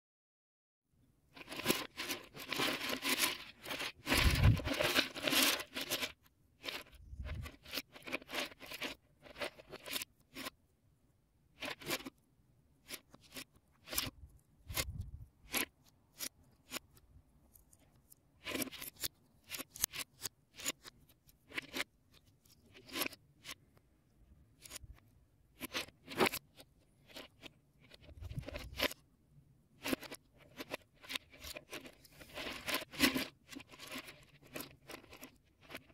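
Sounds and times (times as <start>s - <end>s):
plastic parts clattering: 1.4s - 10.5s.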